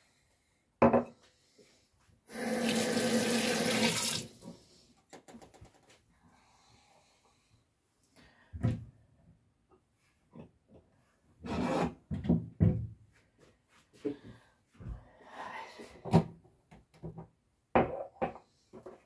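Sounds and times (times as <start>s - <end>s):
tap water pouring into sink: 2.3s - 4.3s.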